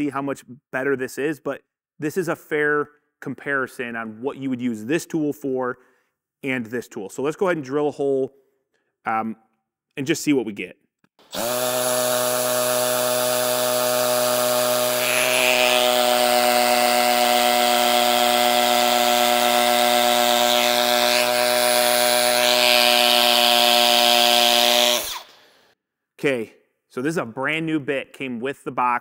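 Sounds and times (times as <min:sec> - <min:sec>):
hammer drill boring into concrete: 0:11.2 - 0:25.8.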